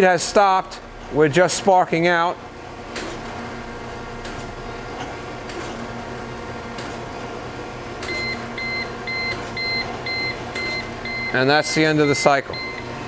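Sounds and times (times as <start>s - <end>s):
buzzer beeping: 8.0s - 12.9s.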